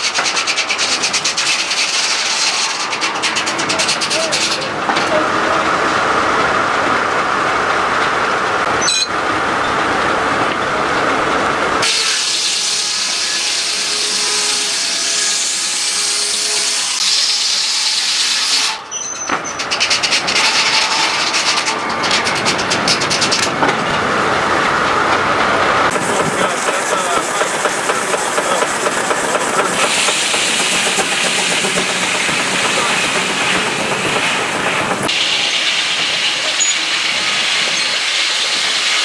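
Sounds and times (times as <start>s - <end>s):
saw blade whine: 11.8s - 18.9s
machinery hissing: 25.3s - 39.0s.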